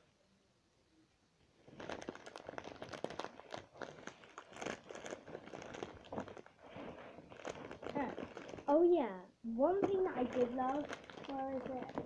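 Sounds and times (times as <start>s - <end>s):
packaging crinkling and rustling: 1.6s - 8.8s, 9.8s - 12.0s.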